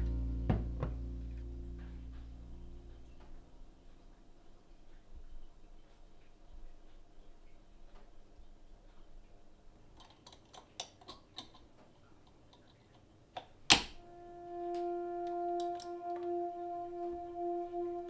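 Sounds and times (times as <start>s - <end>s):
music with held string note: 0.0s - 4.0s, 14.0s - 18.0s.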